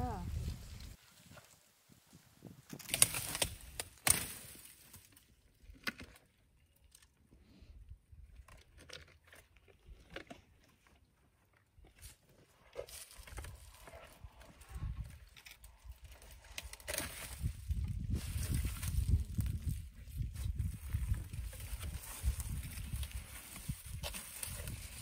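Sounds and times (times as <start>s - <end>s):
elephant snapping branches: 2.7s - 4.7s
rustling leaves: 15.6s - 25.0s.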